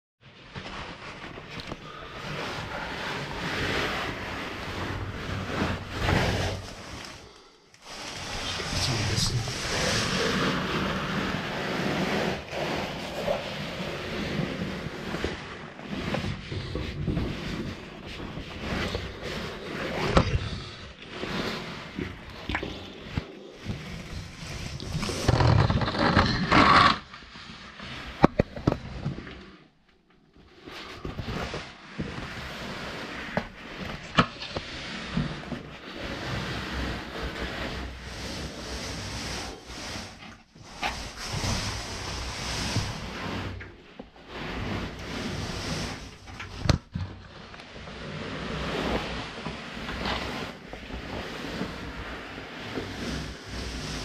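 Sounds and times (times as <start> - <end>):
clothing scraping against rock: 0.5 - 29.6, 30.5 - 54.0
breathing close to microphone: 1.6 - 4.7, 5.5 - 11.4, 18.6 - 25.4
gear scraping against rock: 7.8 - 29.0.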